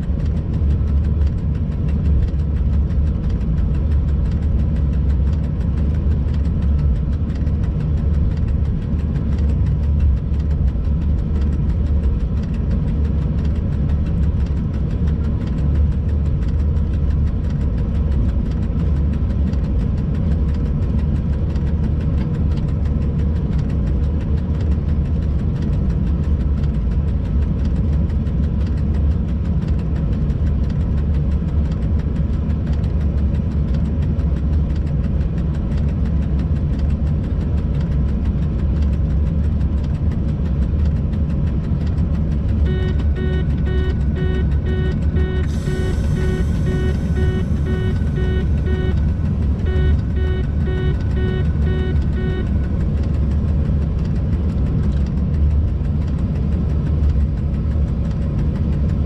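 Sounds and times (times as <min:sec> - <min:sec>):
locomotive cab low rumble: 0:00.0 - 0:59.0
faint steady tone: 0:42.6 - 0:53.2.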